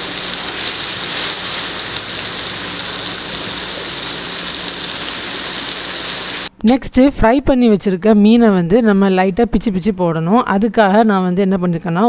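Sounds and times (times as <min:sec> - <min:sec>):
fish sizzling in oil: 0:00.0 - 0:06.5.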